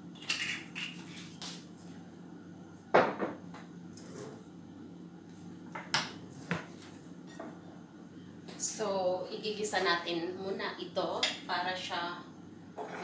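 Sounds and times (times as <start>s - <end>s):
low steady hum: 0.0s - 13.0s
kitchen things clattering: 12.8s - 13.0s.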